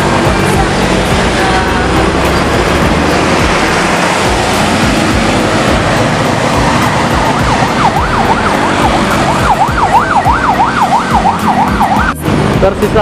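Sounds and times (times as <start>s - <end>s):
bus engine pulling away: 0.0s - 13.0s
road traffic noise: 0.0s - 13.0s
electronic siren sweeping: 2.3s - 12.2s.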